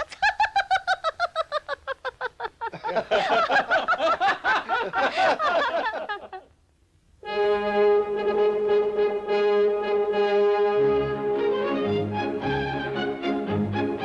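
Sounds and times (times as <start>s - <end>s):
people laughing together: 0.0s - 6.5s.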